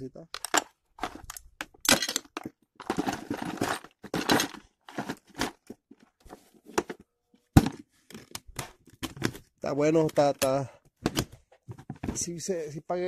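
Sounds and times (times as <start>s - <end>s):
tools rattling in plastic tray: 0.4s - 5.8s.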